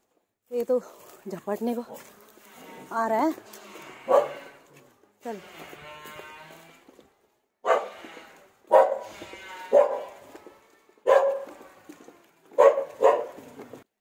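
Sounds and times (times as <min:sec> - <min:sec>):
dog barking: 0:04.0 - 0:04.5, 0:07.6 - 0:08.0, 0:08.7 - 0:10.3, 0:11.0 - 0:11.6, 0:12.5 - 0:13.5.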